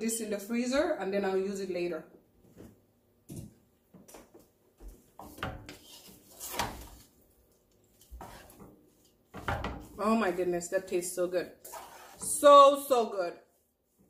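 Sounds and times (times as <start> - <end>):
wooden spoon scraping metal pot: 5.2 - 7.1, 7.8 - 13.2.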